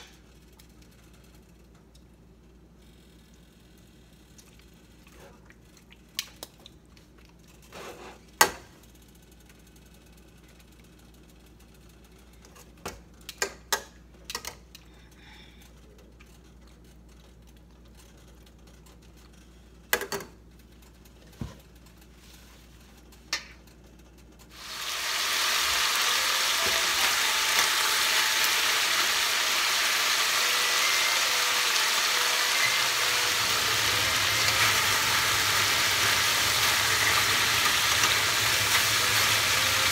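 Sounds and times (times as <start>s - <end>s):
chicken sizzling in oil: 24.5s - 39.9s.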